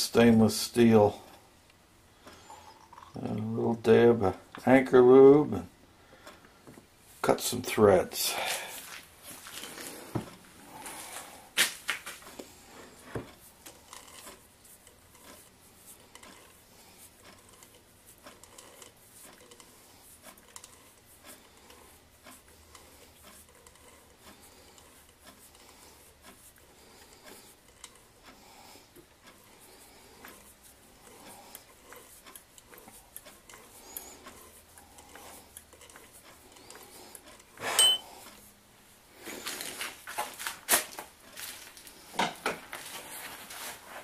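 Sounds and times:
threading die ticking and scraping: 12.0 - 38.6.

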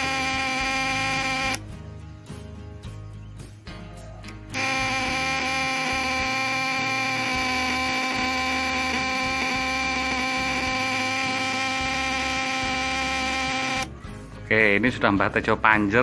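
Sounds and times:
electric buzz of vibrating contacts: 0.0 - 1.7, 4.6 - 14.0.

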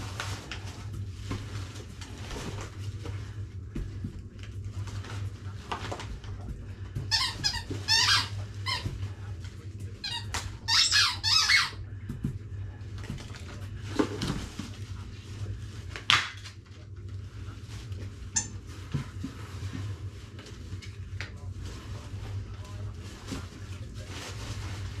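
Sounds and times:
squeaky dog toy squeaks: 7.1 - 8.8, 10.0 - 11.8.

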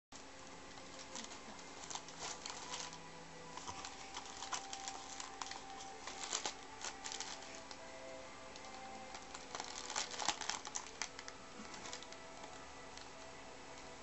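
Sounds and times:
cat scratching paper and cardboard: 0.8 - 7.8.

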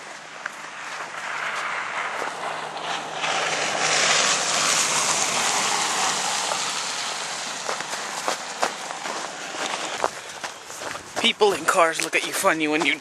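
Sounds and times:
pickup truck driving past: 0.6 - 10.0.

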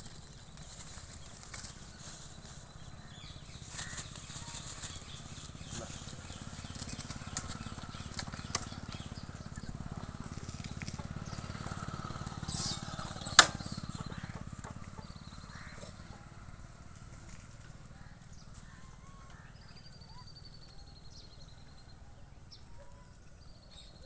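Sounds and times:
rustling: 0.0 - 9.1.

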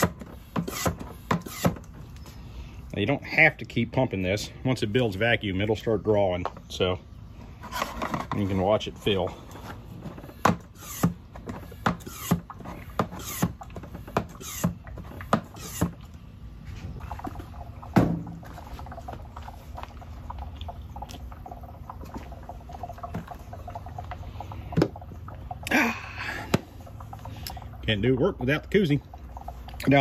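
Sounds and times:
hand pump squeaking: 0.0 - 1.9, 10.2 - 16.0
oil crackling and dribbling: 0.0 - 30.0
can set down: 16.7 - 19.2.

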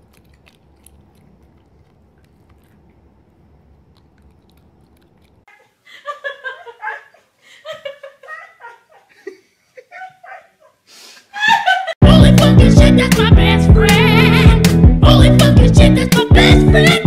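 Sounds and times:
loud laughter: 5.9 - 10.8, 11.4 - 12.0.

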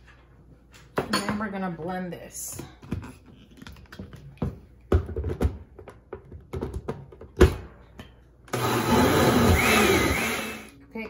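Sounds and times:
blender motor whirring: 8.5 - 10.7.

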